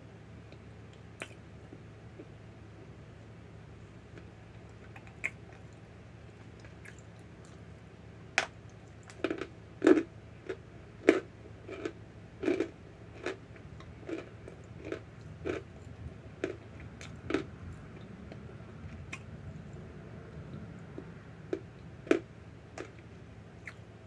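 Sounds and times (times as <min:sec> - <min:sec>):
dry crunching while chewing: 0:04.1 - 0:07.7, 0:08.4 - 0:19.8, 0:20.4 - 0:23.8.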